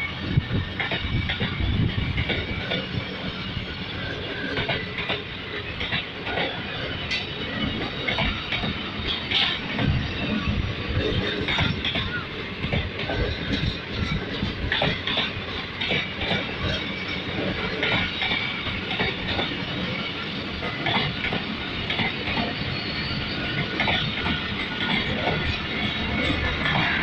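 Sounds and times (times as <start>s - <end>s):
train wheels clattering over rail joints: 0.0s - 27.0s.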